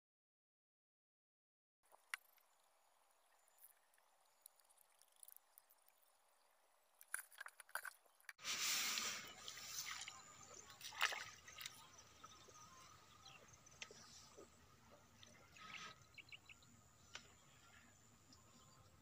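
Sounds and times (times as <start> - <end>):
water sloshing and dripping: 1.9 - 12.6.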